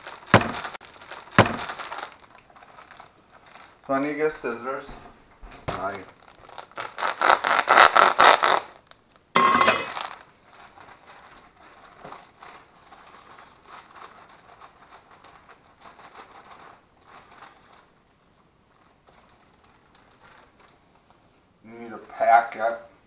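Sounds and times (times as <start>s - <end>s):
sugar bag rustling: 0.0s - 21.6s.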